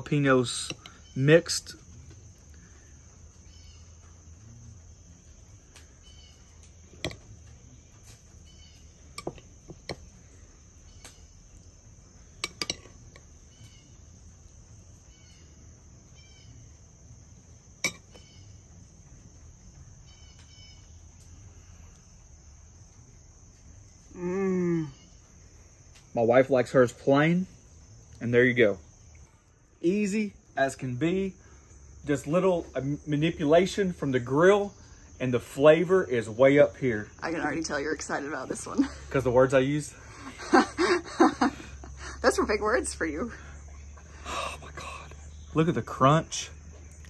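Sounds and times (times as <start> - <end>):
crickets and insects chirping: 0.0 - 47.0
metal spoon clinking glass bowl: 12.4 - 13.0, 17.8 - 18.2.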